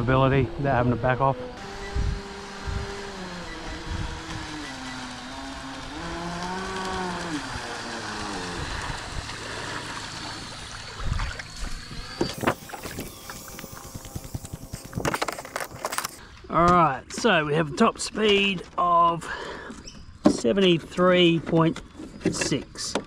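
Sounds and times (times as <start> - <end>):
electric motor whining: 0.0 - 16.2
water hissing: 4.7 - 16.2.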